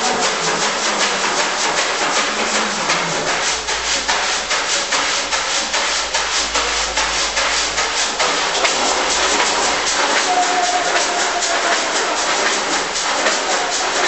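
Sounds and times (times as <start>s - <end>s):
rhythmic rasping noise: 0.0s - 14.0s.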